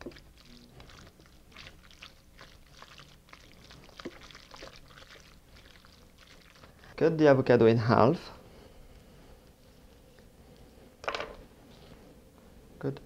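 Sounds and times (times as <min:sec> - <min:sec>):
spatula squelching in a glass bowl: 0:00.0 - 0:06.8.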